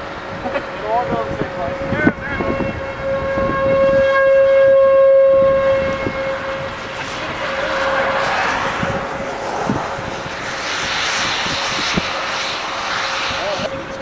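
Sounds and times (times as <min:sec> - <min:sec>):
rushing noise: 0:00.0 - 0:14.0
warning siren wail: 0:01.3 - 0:10.3.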